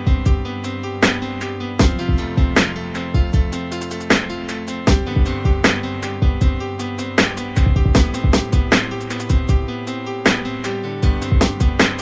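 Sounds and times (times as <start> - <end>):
kick drum beating: 1.8 - 2.6, 3.2 - 3.6, 4.9 - 6.6, 7.6 - 9.7, 11.0 - 11.8.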